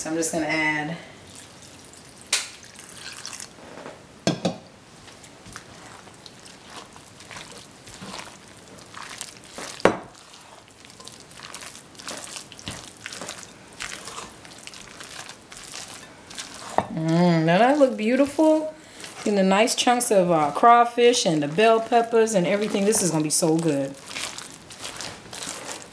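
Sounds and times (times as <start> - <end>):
water pouring into bowl: 1.3 - 3.6
wooden spoon stirring batter: 1.3 - 25.9.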